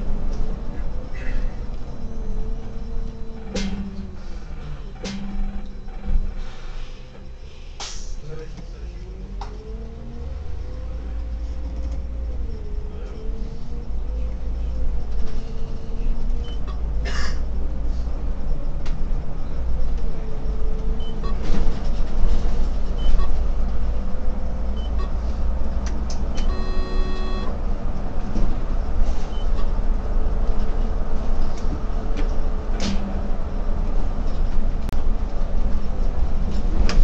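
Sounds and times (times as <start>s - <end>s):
bus engine and road rumble: 0.0s - 37.0s
electronic beep: 26.4s - 27.5s.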